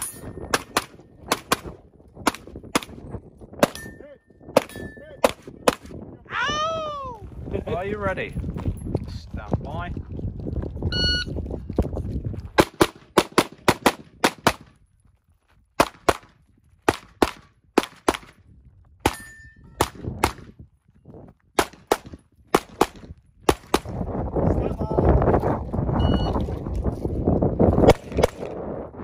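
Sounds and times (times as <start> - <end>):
rapid pistol shots: 0.5 - 3.0, 12.6 - 14.7, 16.9 - 18.3, 21.6 - 24.0
shot timer beep: 10.9 - 11.3, 26.0 - 26.4.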